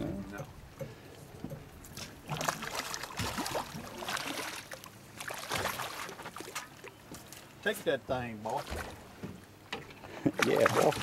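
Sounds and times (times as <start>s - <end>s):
fish splashing at surface: 2.0s - 6.8s.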